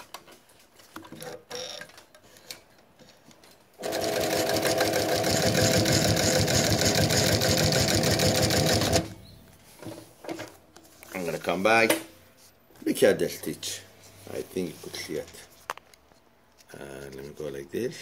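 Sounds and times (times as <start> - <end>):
sewing machine clatter: 3.8 - 9.1.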